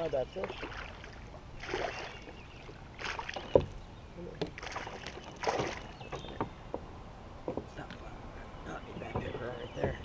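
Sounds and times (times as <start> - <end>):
water splashing: 0.0 - 6.8.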